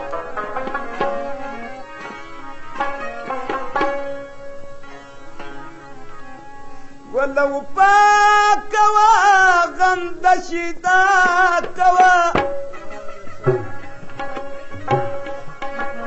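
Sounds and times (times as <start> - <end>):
instrumental accompaniment: 0.0 - 16.0.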